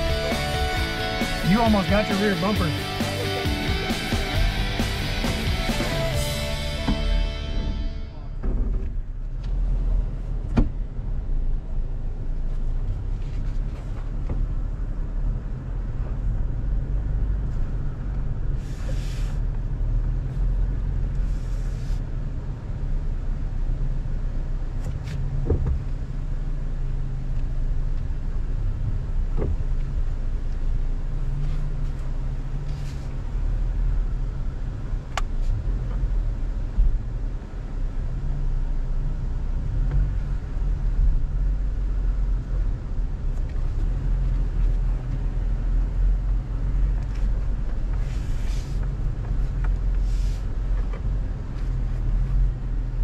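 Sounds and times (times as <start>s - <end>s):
engine and road rumble: 0.0s - 53.0s
brief hisses: 18.6s - 19.4s.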